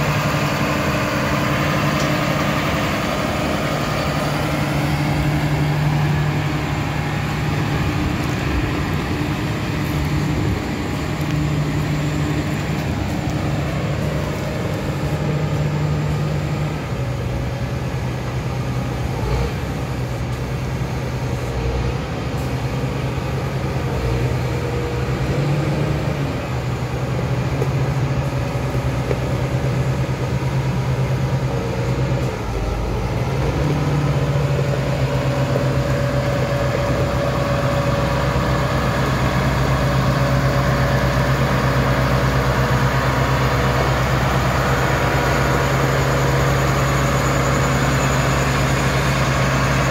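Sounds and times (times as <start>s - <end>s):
tractor diesel engine running: 0.0s - 49.9s.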